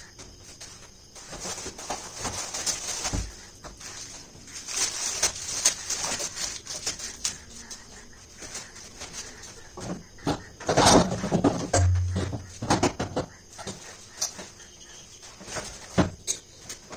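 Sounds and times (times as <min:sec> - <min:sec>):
plastic wrapping crinkling: 0:01.2 - 0:09.7.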